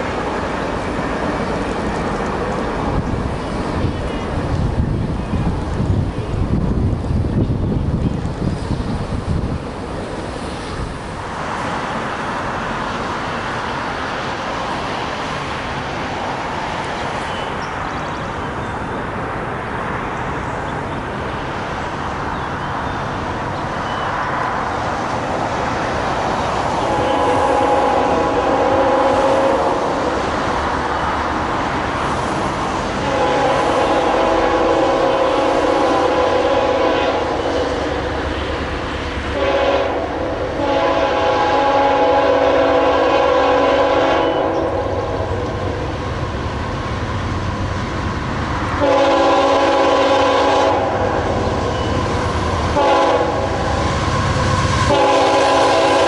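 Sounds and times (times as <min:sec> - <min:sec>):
distant locomotive horn blasts: 0:26.7 - 0:30.0, 0:33.0 - 0:38.2, 0:39.3 - 0:45.3, 0:48.8 - 0:56.0.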